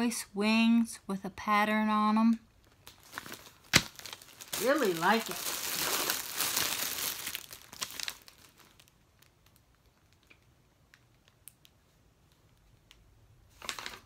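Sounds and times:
plastic bag crinkling: 2.6s - 11.6s.

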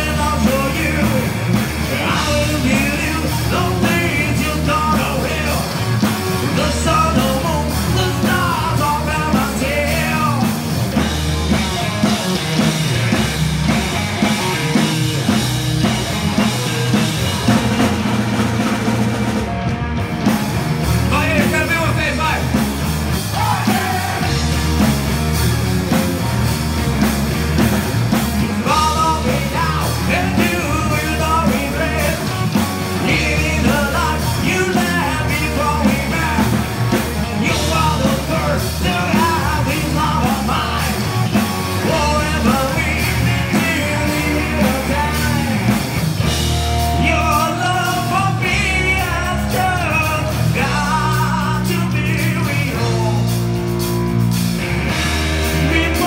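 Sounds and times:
person singing: 0.0s - 1.3s, 1.9s - 5.8s, 6.4s - 10.6s, 23.3s - 24.6s, 28.5s - 36.7s, 37.3s - 45.8s, 46.7s - 53.4s, 55.5s - 56.0s
bass guitar: 0.0s - 56.0s
drums: 0.0s - 56.0s
electric guitar: 0.0s - 56.0s.

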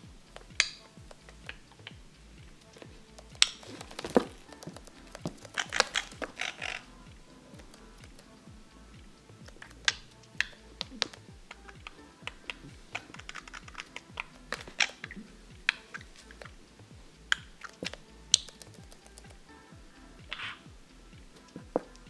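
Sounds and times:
background music: 0.0s - 22.0s
bird clicking on wooden floor: 2.8s - 6.8s, 9.5s - 16.6s, 17.3s - 19.4s.

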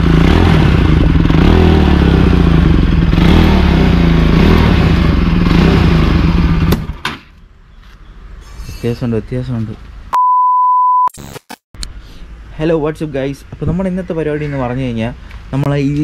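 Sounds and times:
motorcycle engine revving: 0.0s - 7.0s.

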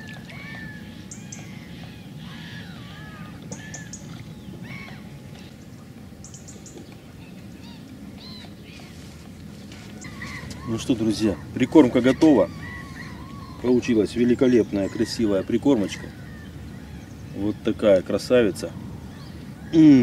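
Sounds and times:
small birds chirping: 0.0s - 20.0s
steady low background noise: 0.0s - 20.0s.

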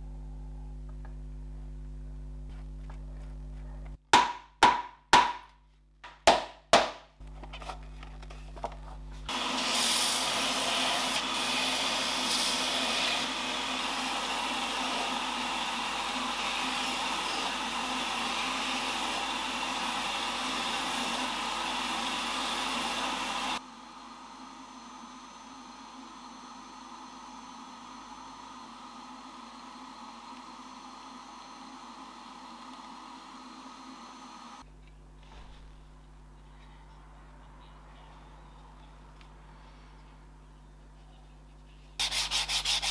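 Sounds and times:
small power tool running: 9.3s - 34.6s.

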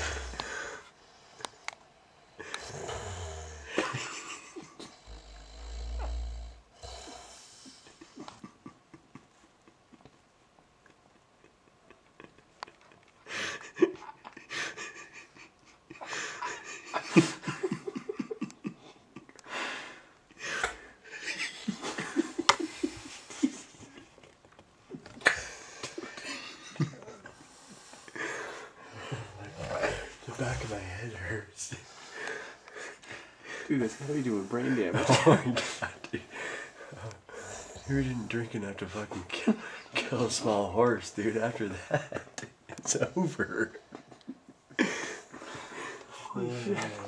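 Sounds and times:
man snoring: 0.0s - 8.0s, 29.2s - 31.0s, 37.0s - 38.4s
snorting breaths: 0.0s - 8.4s, 25.3s - 40.6s, 43.8s - 47.0s.

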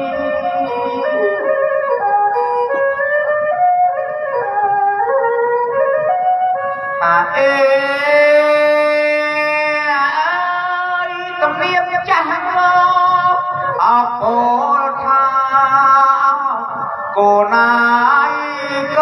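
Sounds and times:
instrumental backing music: 0.0s - 19.0s
man singing through microphone: 7.0s - 19.0s.

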